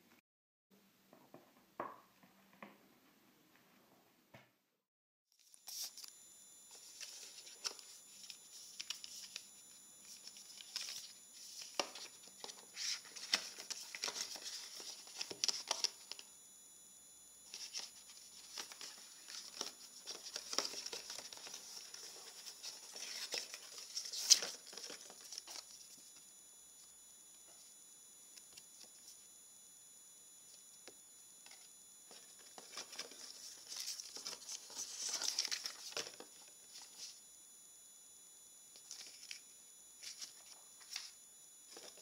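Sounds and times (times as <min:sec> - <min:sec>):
paper packaging rustling: 0:10.1 - 0:16.2, 0:17.5 - 0:25.9, 0:32.1 - 0:37.1.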